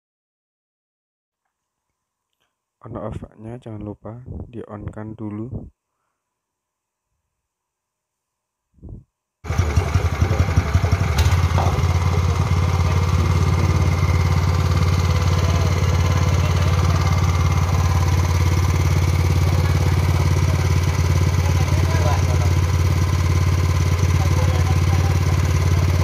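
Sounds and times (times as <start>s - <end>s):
petrol engine running: 9.5s - 26.0s.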